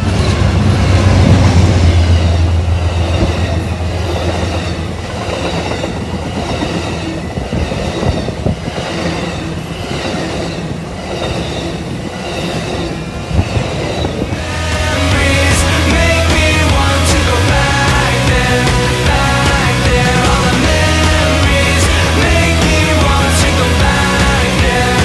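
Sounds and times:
locomotive engine drone: 0.0s - 25.0s
train cars rumbling past: 0.0s - 25.0s.

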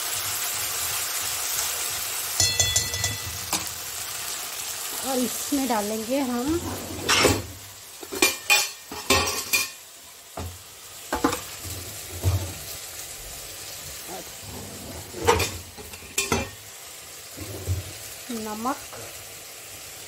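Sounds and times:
food sizzling in oil: 0.0s - 20.0s
metal utensils clattering: 2.4s - 3.8s, 6.4s - 9.8s, 11.2s - 12.6s, 14.4s - 16.6s, 17.4s - 17.9s.

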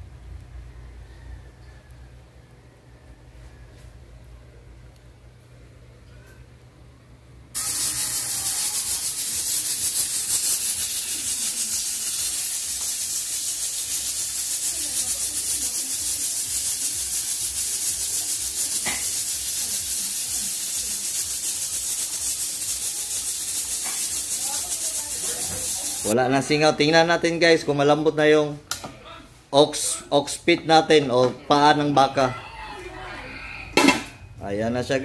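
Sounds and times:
pressure cooker hissing steam: 7.6s - 26.2s.

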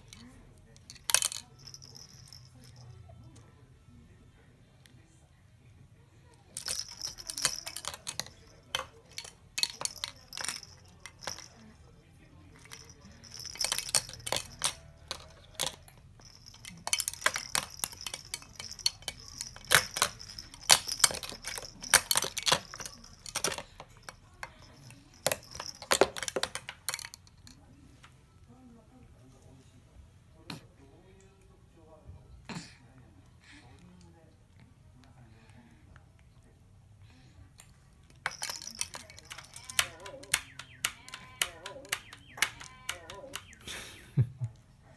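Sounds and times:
baby toys rattling and jingling: 0.0s - 3.3s, 6.5s - 27.6s, 37.5s - 43.7s.

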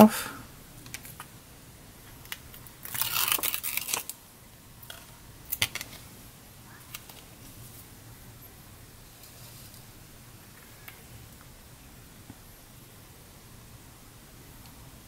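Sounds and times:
tape backing peeling: 2.3s - 4.2s.

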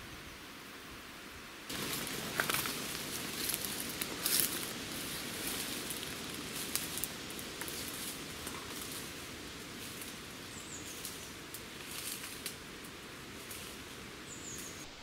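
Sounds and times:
footsteps through undergrowth: 1.7s - 12.6s
dry leaves and twigs crackling: 1.7s - 15.0s.

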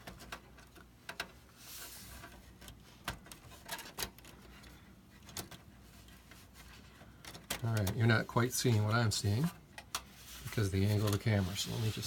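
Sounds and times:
soft rustle: 1.5s - 3.7s, 8.1s - 12.0s.

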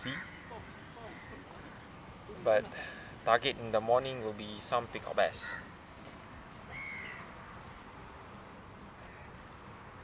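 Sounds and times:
insects calling: 0.0s - 10.0s.

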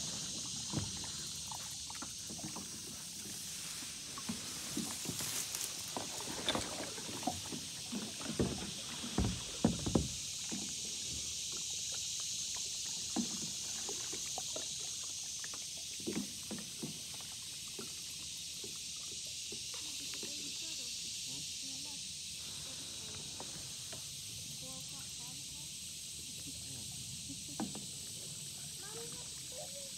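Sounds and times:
steady high hiss: 0.0s - 15.7s, 18.4s - 29.9s
kayak hull rustling through grass: 0.0s - 18.4s, 22.4s - 25.5s
soft knocks on kayak hull: 8.0s - 10.6s.

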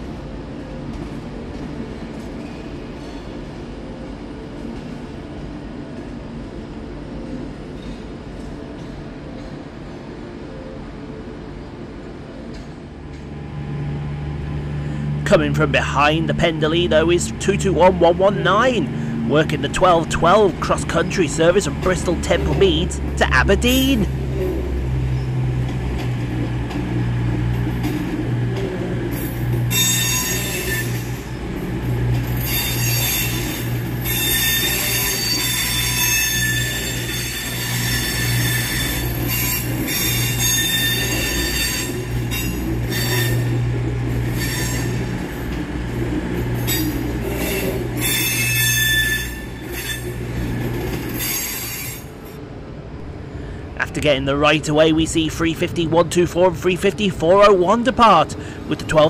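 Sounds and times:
train engines droning: 0.0s - 59.0s
train wheels squealing: 29.2s - 31.4s, 32.2s - 43.6s, 44.2s - 45.3s, 46.6s - 52.2s.

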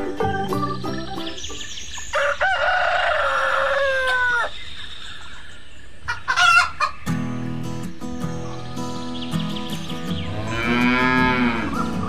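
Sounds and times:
rooster crowing: 2.1s - 4.6s.

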